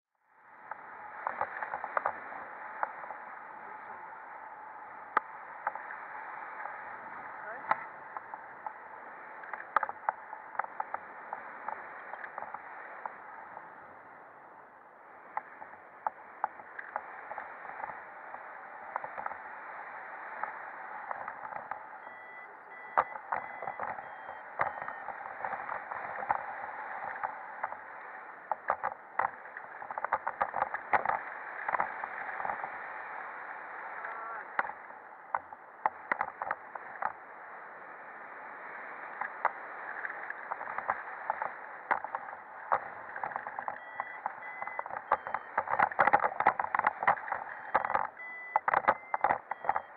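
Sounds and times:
faint short beeps: 0:21.9 - 0:25.7, 0:43.6 - 0:46.6, 0:47.5 - 0:49.9.

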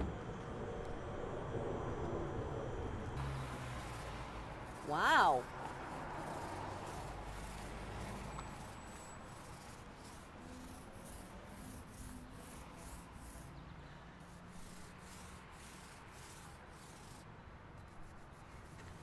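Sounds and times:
paint roller rubbing on metal: 0:03.2 - 0:13.5, 0:14.2 - 0:17.2, 0:17.8 - 0:19.0.

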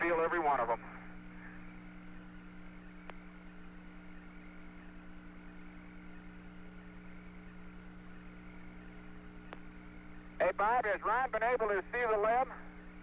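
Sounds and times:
radio channel hiss and hum: 0:00.0 - 0:13.0
faint click: 0:03.0 - 0:03.2.

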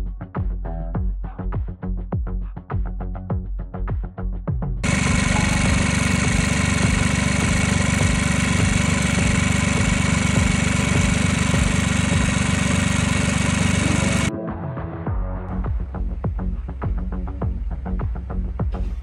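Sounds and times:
engine idling: 0:04.8 - 0:14.3.

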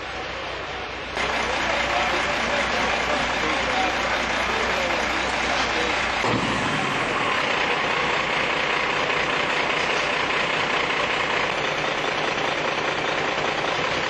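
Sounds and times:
diesel engine idling: 0:00.0 - 0:14.0.

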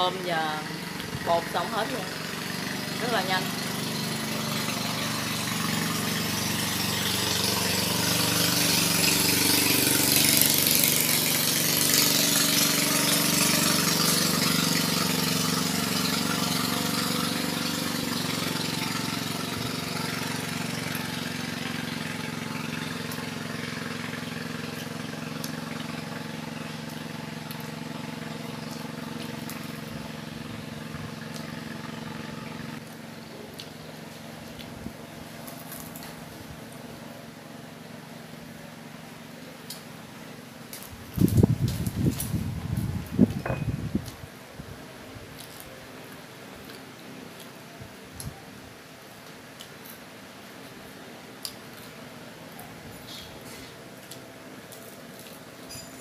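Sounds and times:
motor engine running: 0:00.0 - 0:44.2.

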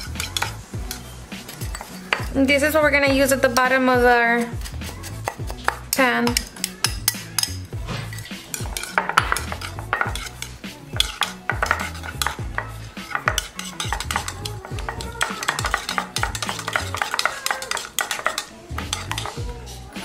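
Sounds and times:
knife scraping a ceramic bowl: 0:04.4 - 0:19.8.

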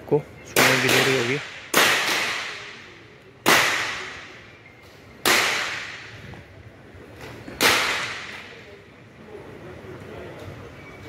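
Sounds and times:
pistol shots with echo: 0:00.5 - 0:04.4, 0:05.2 - 0:06.1, 0:07.6 - 0:08.6.

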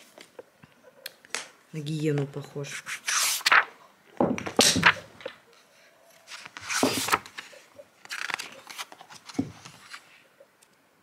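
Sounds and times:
glossy book pages turning: 0:02.8 - 0:03.8, 0:06.2 - 0:10.1.

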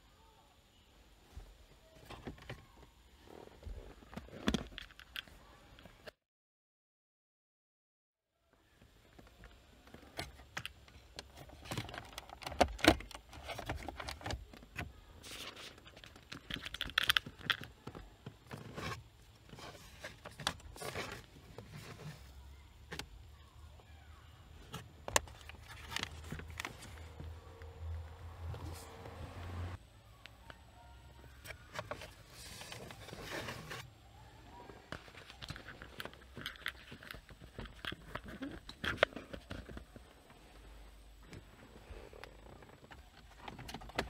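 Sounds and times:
rustling and scraping: 0:15.2 - 0:22.4, 0:24.6 - 0:27.4, 0:31.4 - 0:34.0.

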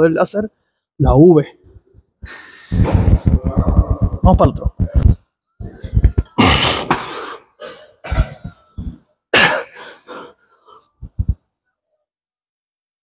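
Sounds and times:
man coughing: 0:06.3 - 0:08.6, 0:09.3 - 0:10.1.

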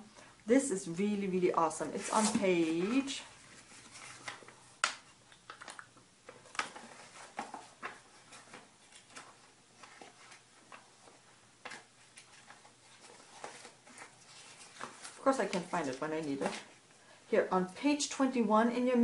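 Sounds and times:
paper pages turning: 0:01.8 - 0:16.8.

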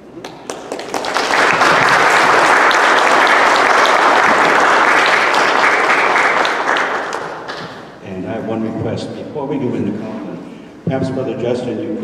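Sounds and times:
audience applauding: 0:00.2 - 0:07.9.

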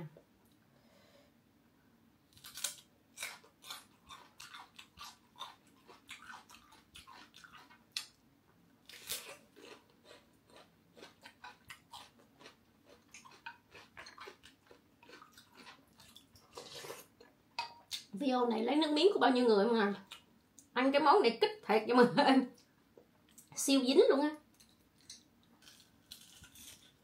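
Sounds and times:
crunching and chewing cucumber: 0:02.3 - 0:08.2, 0:08.9 - 0:17.1, 0:24.6 - 0:27.0.

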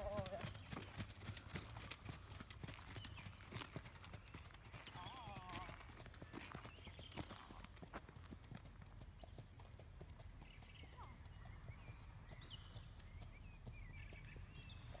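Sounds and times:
hooves on sand: 0:00.0 - 0:09.4.

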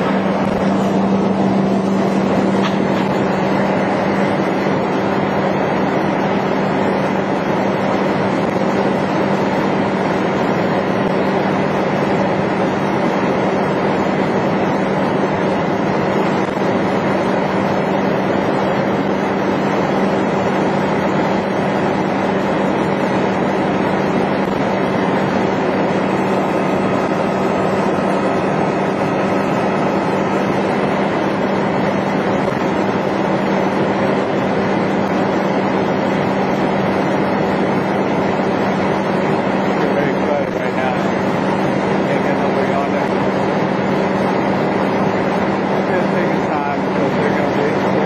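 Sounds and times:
truck engine running: 0:00.0 - 0:48.0.

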